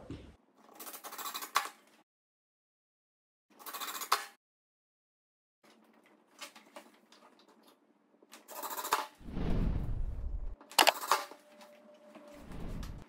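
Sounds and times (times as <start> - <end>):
impact driver driving screw into wood: 10.8 - 11.0.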